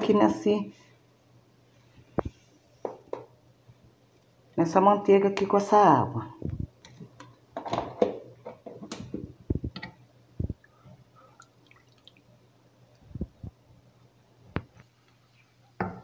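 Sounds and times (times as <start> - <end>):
water sloshing in a pot: 9.7 - 12.3.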